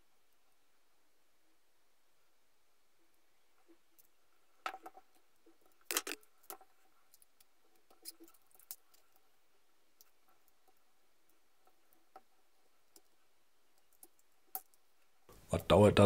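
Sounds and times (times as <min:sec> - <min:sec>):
metal fittings clicking and clattering: 0:04.7 - 0:09.2.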